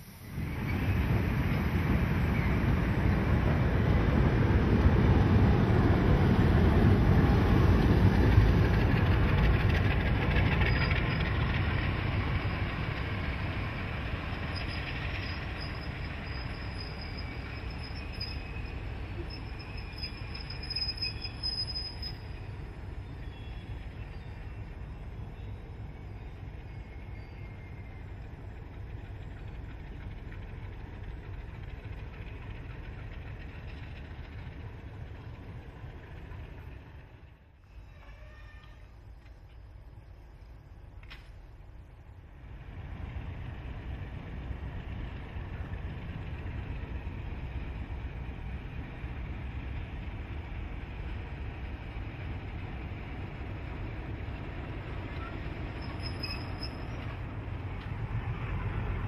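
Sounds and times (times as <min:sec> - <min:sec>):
train wheels rumbling on rails: 0:00.0 - 0:59.0
high wheel squeal: 0:14.4 - 0:22.5, 0:37.7 - 0:39.0, 0:55.1 - 0:57.3.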